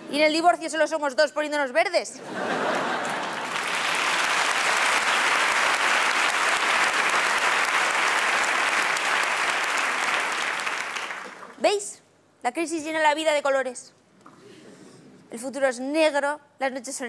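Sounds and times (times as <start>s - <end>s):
audience applauding: 2.8s - 11.6s.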